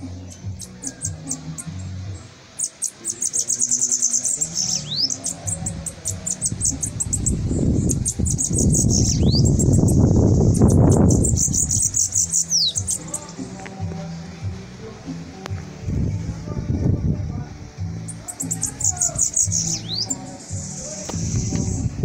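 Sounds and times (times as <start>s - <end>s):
bird singing buzzy trills: 0.0s - 22.0s
low rumbling noise: 4.8s - 12.0s, 12.8s - 22.0s.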